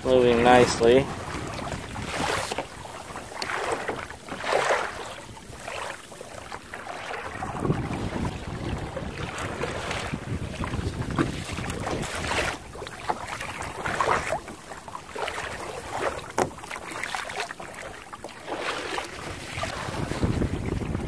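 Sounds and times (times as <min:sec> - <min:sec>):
wind buffeting microphone: 0:00.0 - 0:04.0, 0:07.2 - 0:14.4, 0:19.1 - 0:21.0
water splashing against kayak hull: 0:00.0 - 0:21.0.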